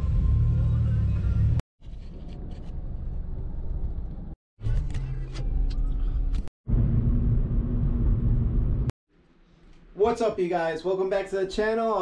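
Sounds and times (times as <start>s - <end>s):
road noise rumble: 6.2s - 8.9s.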